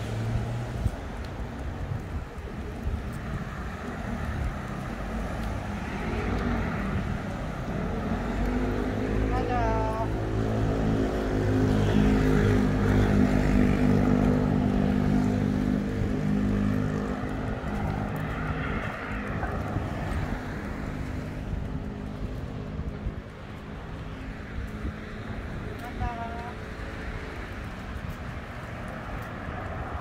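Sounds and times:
street traffic: 0:00.0 - 0:30.0
vehicle engine humming: 0:00.0 - 0:30.0.

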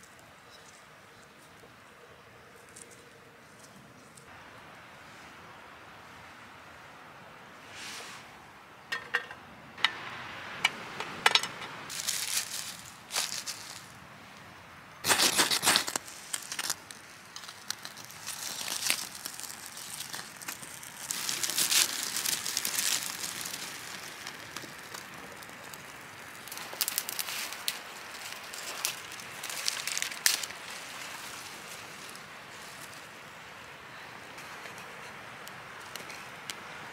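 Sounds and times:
campfire crackling: 0:07.8 - 0:36.9
loud scrape: 0:15.0 - 0:16.0.

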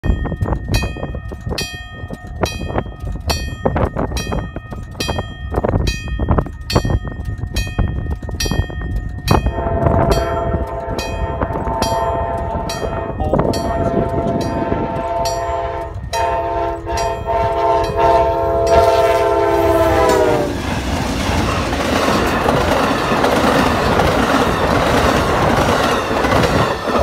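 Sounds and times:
crossing signal bell ringing: 0:00.0 - 0:20.5, 0:22.0 - 0:27.0
locomotive horn: 0:09.5 - 0:20.6.

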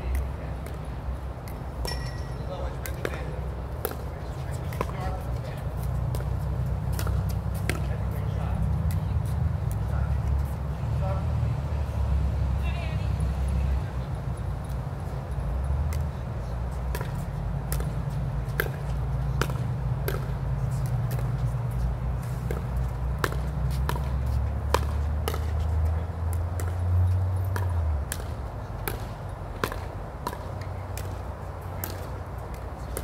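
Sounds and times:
ball bouncing on court: 0:01.4 - 0:09.9, 0:16.9 - 0:21.5, 0:22.4 - 0:33.0
paddles striking ball: 0:06.1 - 0:08.2, 0:22.4 - 0:25.6.

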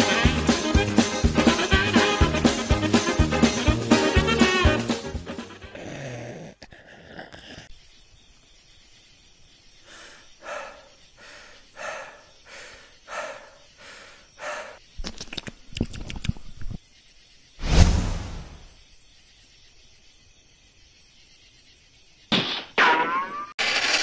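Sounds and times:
soft cartoon swishes: 0:17.6 - 0:18.8.

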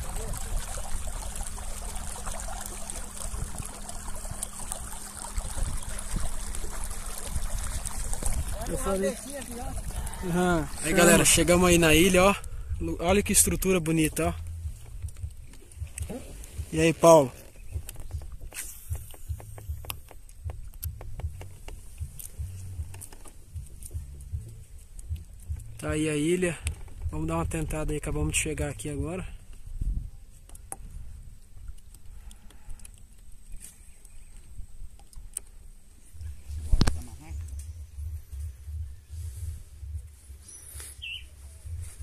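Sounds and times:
small water splashes: 0:00.0 - 0:12.5
water lapping along kayak hull: 0:00.0 - 0:42.0
low rumble: 0:09.6 - 0:17.0, 0:17.6 - 0:29.0, 0:36.1 - 0:42.0
faint low hum: 0:35.9 - 0:42.0.

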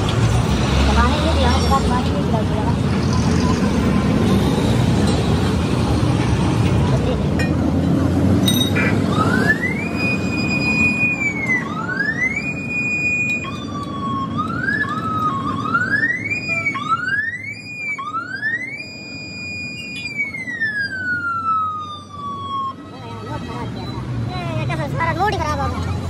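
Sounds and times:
traffic and street noise: 0:00.0 - 0:26.0
electronic siren wailing: 0:08.9 - 0:23.3.

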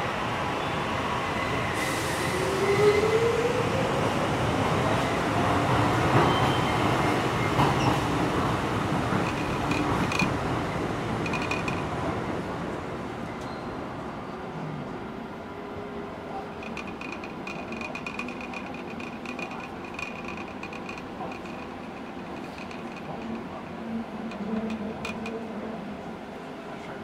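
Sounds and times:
train wheels rumbling on rails: 0:01.5 - 0:13.5, 0:16.3 - 0:25.8.

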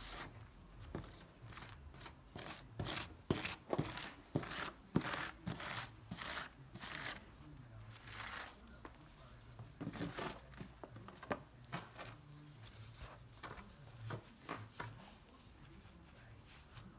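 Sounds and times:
grout tool scraping mosaic: 0:00.0 - 0:08.9.

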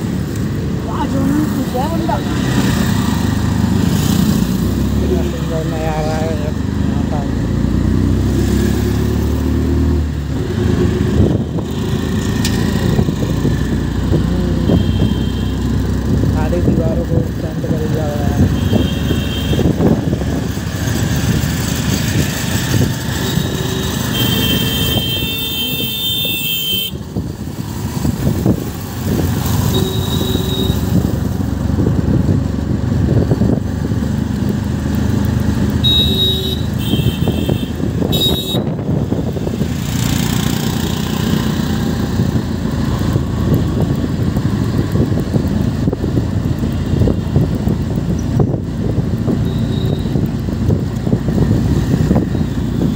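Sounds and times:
vehicle engine and road noise: 0:00.0 - 0:52.9
vehicle horns honking: 0:14.6 - 0:15.6, 0:18.5 - 0:19.8, 0:23.2 - 0:27.0, 0:29.6 - 0:31.0, 0:35.8 - 0:38.8.

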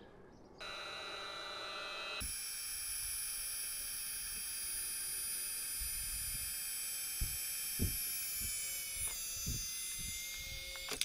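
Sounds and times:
air pump whining: 0:00.6 - 0:11.0
soft low thumps: 0:07.1 - 0:10.5.

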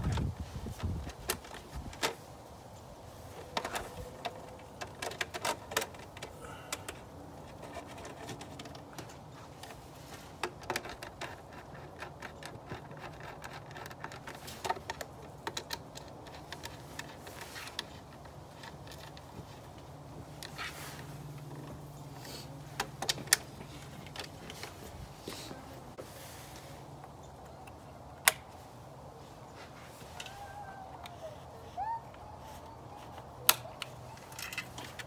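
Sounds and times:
screwdriver working fasteners: 0:07.4 - 0:19.2.

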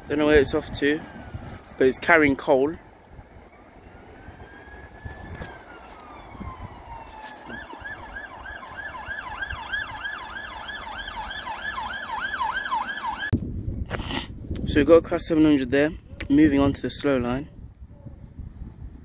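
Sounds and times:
emergency vehicle siren: 0:00.6 - 0:13.4.

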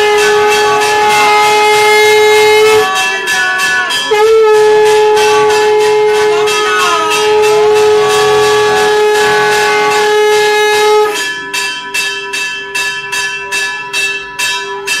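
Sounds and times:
long blown note: 0:00.0 - 0:11.2
temple bell ringing: 0:00.0 - 0:15.0.

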